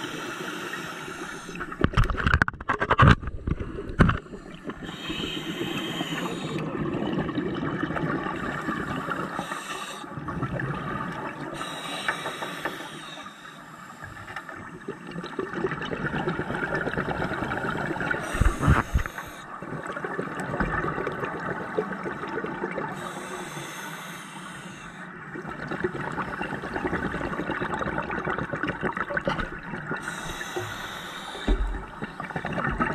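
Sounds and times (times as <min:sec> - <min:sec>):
regulator hissing inhale: 0:00.0 - 0:01.8, 0:04.4 - 0:06.7, 0:08.7 - 0:10.2, 0:11.5 - 0:14.6, 0:18.2 - 0:19.5, 0:22.9 - 0:25.2, 0:30.0 - 0:32.4
bubbles gurgling underwater: 0:03.4 - 0:09.2, 0:10.2 - 0:11.6, 0:14.7 - 0:23.0, 0:25.4 - 0:30.7, 0:31.4 - 0:32.9.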